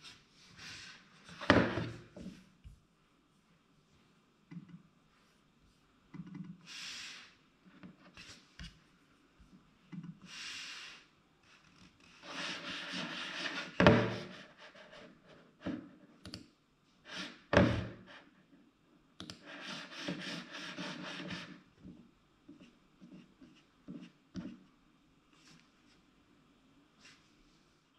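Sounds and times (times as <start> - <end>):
mouse sliding across desk: 12.1 - 15.0, 19.4 - 21.6.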